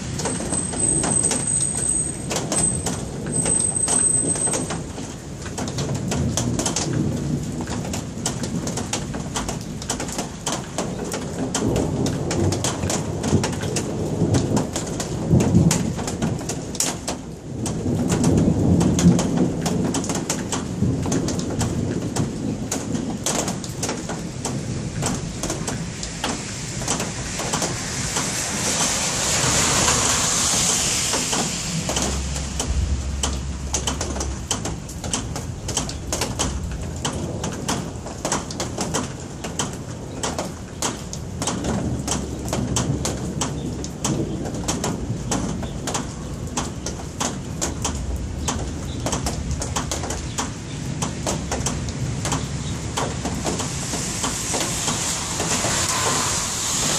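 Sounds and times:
rain drops tapping: 0.0 - 56.9
thunder rumbling: 0.0 - 56.9
hiss: 25.8 - 33.5, 53.0 - 56.9.

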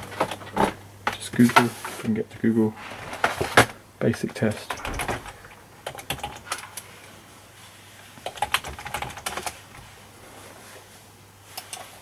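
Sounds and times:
computer keyboard typing: 4.9 - 6.8, 8.2 - 9.6.

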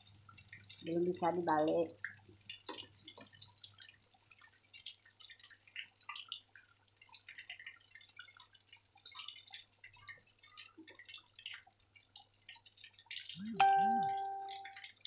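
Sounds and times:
oil crackling and popping: 0.0 - 1.0, 1.8 - 13.4
low steady hum: 13.3 - 14.9.

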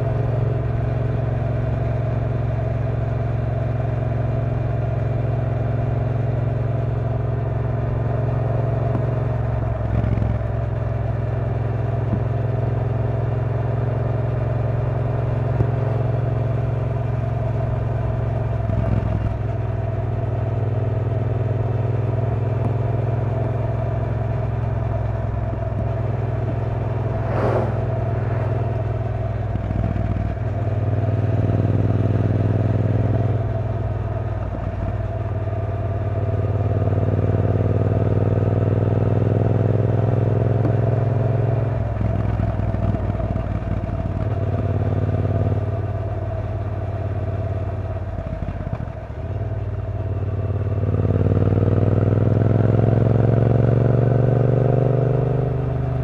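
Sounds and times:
brief sharp noise: 27.0 - 29.0.

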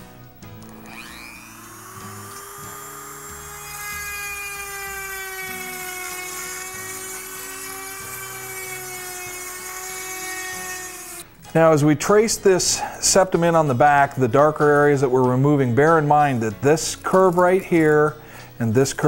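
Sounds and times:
rotary tool whining: 0.0 - 11.5.

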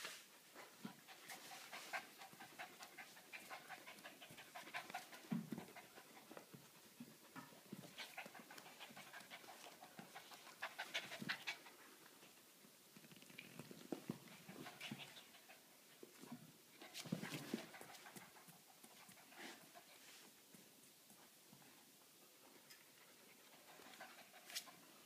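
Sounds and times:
dog panting: 0.6 - 12.3, 14.2 - 20.3, 23.0 - 25.0.

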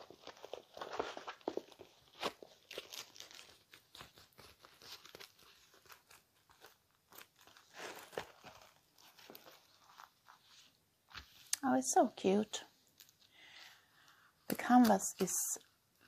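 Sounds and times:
plastic film crinkling: 0.0 - 11.6.

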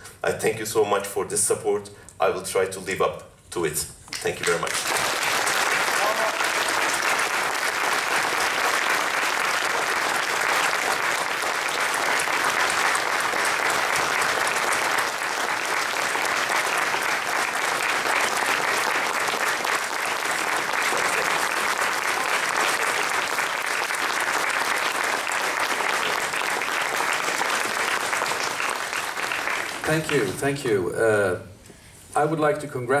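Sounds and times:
audience applauding: 4.2 - 30.4.

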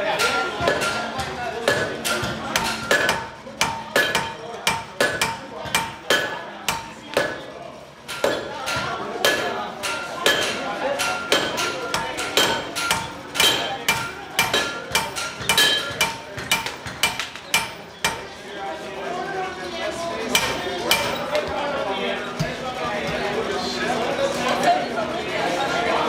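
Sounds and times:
anvil ringing: 0.0 - 18.3, 20.4 - 21.4
hammer striking steel on anvil: 0.0 - 18.3, 20.3 - 21.5.

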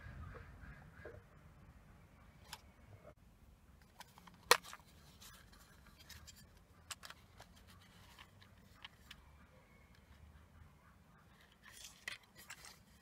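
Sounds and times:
plastic case snapping open: 4.0 - 4.8.

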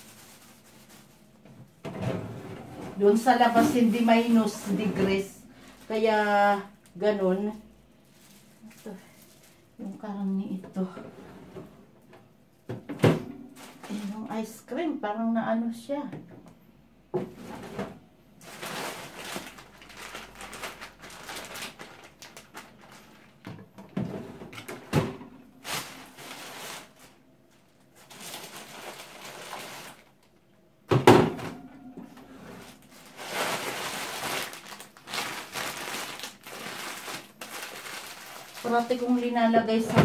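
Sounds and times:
plastic bags rustling: 0.0 - 10.1, 13.4 - 14.7, 17.3 - 30.3, 31.4 - 40.0
freezer drawers knocking: 30.9 - 31.7.

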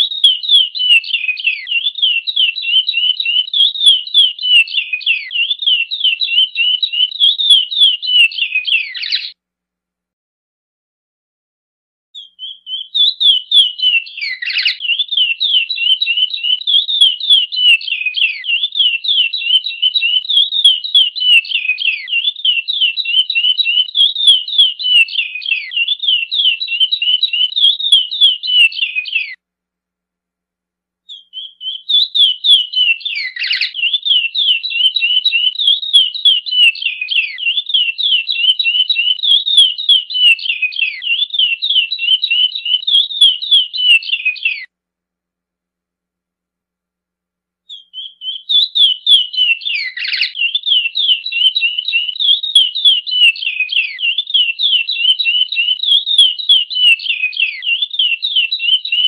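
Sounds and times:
finch singing whistled notes: 0.0 - 9.4, 12.2 - 29.4, 31.1 - 44.7, 47.7 - 59.0.

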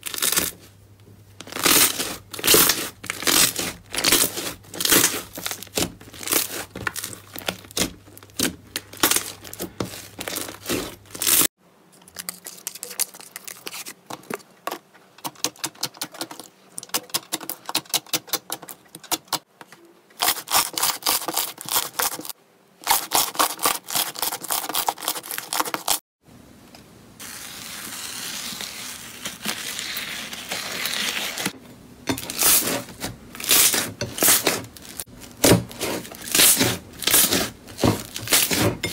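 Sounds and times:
crackling hiss of slime: 27.2 - 31.6.

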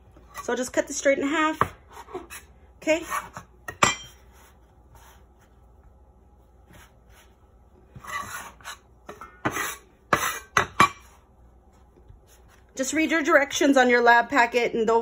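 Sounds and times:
soft handling of dough: 1.3 - 10.4, 11.0 - 13.7
metal scraper on cutting board: 8.0 - 11.1.

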